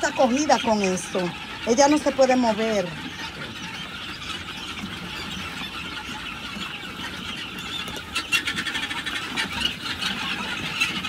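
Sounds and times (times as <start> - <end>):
young guinea fowl peeping: 0.0 - 11.0.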